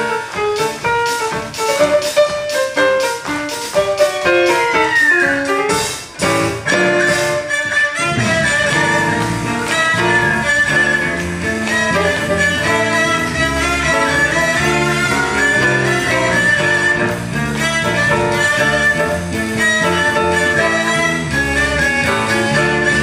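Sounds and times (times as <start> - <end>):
piano accompaniment: 0.0 - 23.0.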